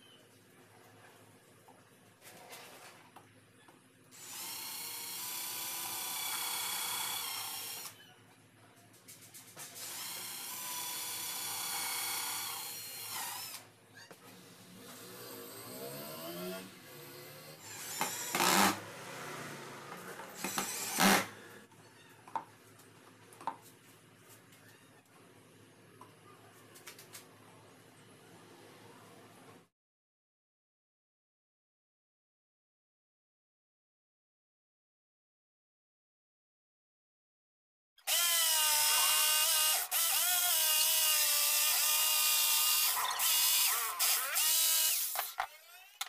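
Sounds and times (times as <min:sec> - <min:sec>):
cordless drill whining: 0:04.2 - 0:08.0, 0:09.8 - 0:13.6, 0:14.9 - 0:18.8, 0:19.9 - 0:21.6, 0:38.0 - 0:46.0.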